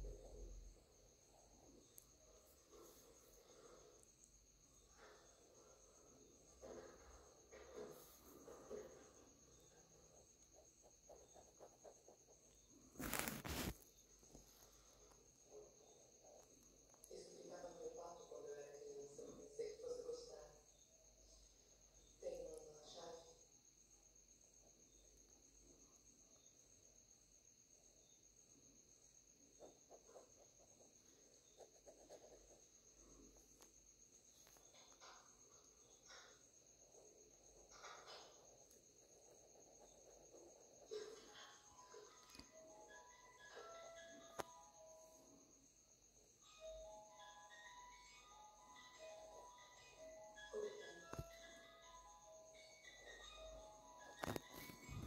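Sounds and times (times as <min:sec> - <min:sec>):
high pulsing insect trill: 0:00.0 - 0:55.0
pen scratching on paper: 0:10.0 - 0:13.8, 0:29.6 - 0:33.5, 0:37.7 - 0:41.6.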